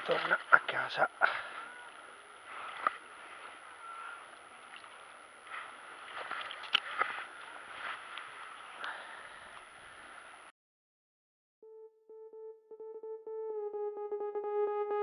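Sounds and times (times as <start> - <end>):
water splashing and sloshing: 4.4 - 7.2.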